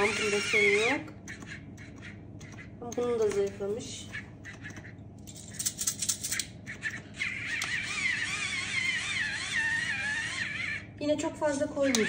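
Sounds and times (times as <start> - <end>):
small motor whining: 0.0 - 2.6, 6.7 - 10.9
pepper grinder crackling: 2.9 - 10.8.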